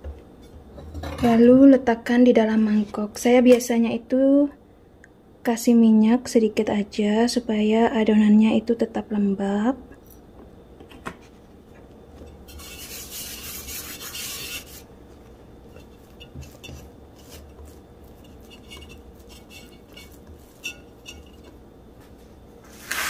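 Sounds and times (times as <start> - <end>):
hand rubbing bread dough: 12.5 - 23.0
light taps and scrapes on bowl: 15.2 - 21.6.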